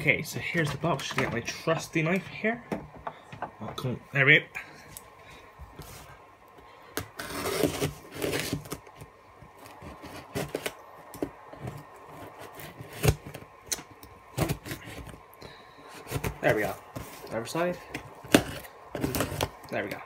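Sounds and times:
knife slitting packing tape: 0:07.2 - 0:08.8.

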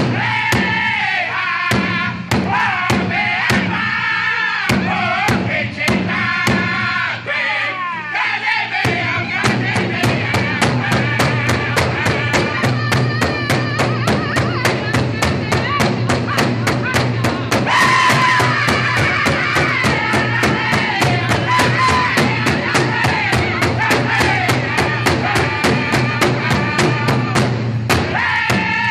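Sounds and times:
men singing in unison: 0:00.0 - 0:28.9
hide drum beating: 0:01.7 - 0:03.9, 0:08.8 - 0:28.9.

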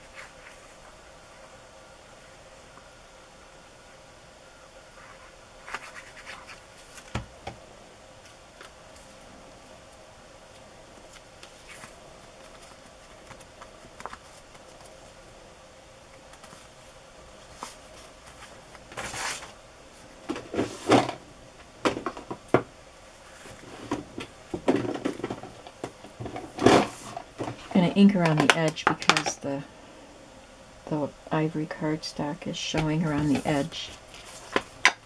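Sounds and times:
paper rustling: 0:05.0 - 0:07.2, 0:10.5 - 0:15.0, 0:17.4 - 0:19.6, 0:33.1 - 0:34.7.

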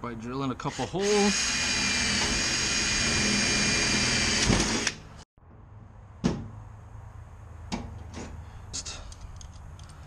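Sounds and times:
cordless drill whining: 0:00.7 - 0:05.0.

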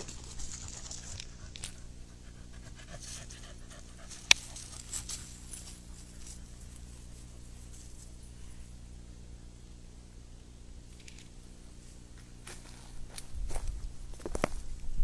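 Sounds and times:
panting breaths: 0:00.0 - 0:06.9
footsteps rustling in dry leaves: 0:04.1 - 0:08.3, 0:12.2 - 0:15.0.

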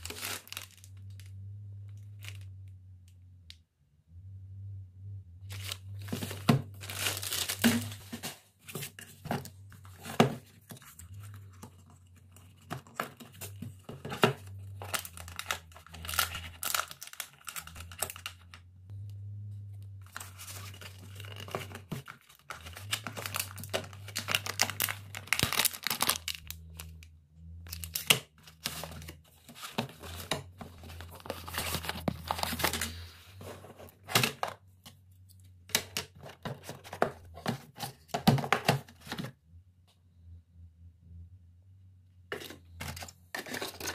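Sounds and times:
plastic wrapping crinkling and tearing: 0:00.0 - 0:01.3, 0:05.5 - 0:08.3, 0:13.4 - 0:18.6, 0:20.1 - 0:26.9, 0:27.7 - 0:33.0
low hum: 0:00.7 - 0:08.3, 0:13.5 - 0:21.9.

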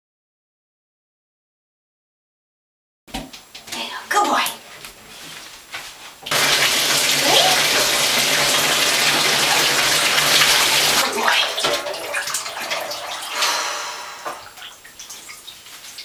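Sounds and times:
tap running into bathtub: 0:06.3 - 0:13.5
water splashing and dripping: 0:06.3 - 0:13.6, 0:14.2 - 0:16.0.

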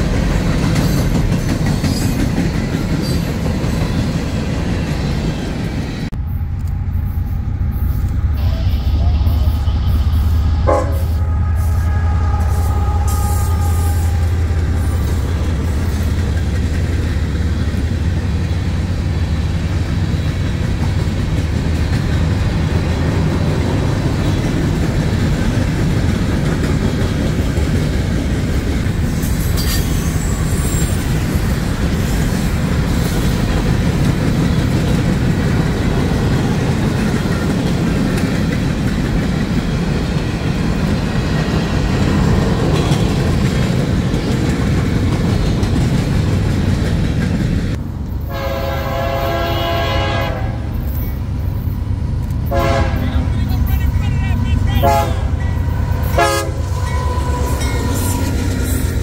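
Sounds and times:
diesel locomotive engine rumble: 0:00.0 - 0:59.0
freight cars rumbling and clattering: 0:13.8 - 0:48.4
high wheel screech: 0:29.2 - 0:31.1.

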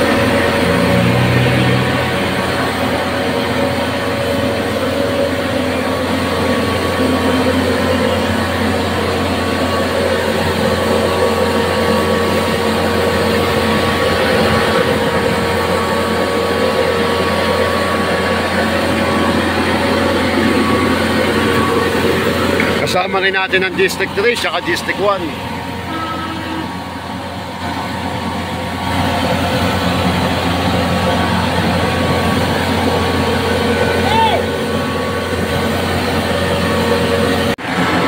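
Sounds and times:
pump running: 0:00.0 - 0:38.0.

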